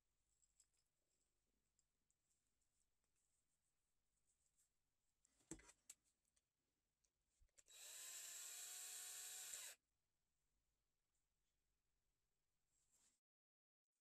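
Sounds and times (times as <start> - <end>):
cordless drill driving screw: 7.7 - 9.8.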